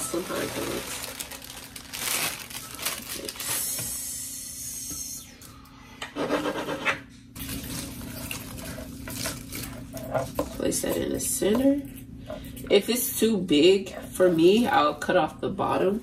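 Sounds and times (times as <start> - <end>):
pine cones rustling and clattering: 0.0 - 3.7.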